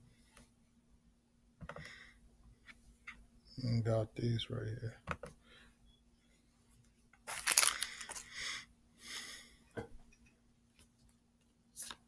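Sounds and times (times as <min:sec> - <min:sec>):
foil wrapper crinkling: 0:07.3 - 0:08.3.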